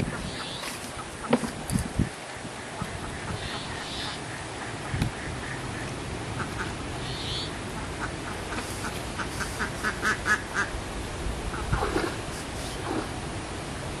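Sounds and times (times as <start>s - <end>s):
duck quacking: 2.8s - 10.7s.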